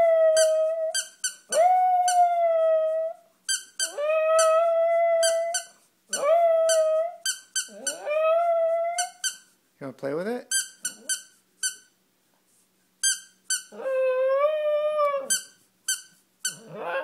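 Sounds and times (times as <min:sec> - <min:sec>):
small dog howling: 0:00.0 - 0:03.2, 0:03.9 - 0:05.6, 0:06.2 - 0:09.1, 0:13.7 - 0:15.3, 0:16.6 - 0:17.0
squeaky toy squeaks: 0:00.4 - 0:01.6, 0:03.5 - 0:04.6, 0:05.2 - 0:08.1, 0:09.0 - 0:09.5, 0:10.5 - 0:11.9, 0:13.0 - 0:13.8, 0:15.3 - 0:16.7.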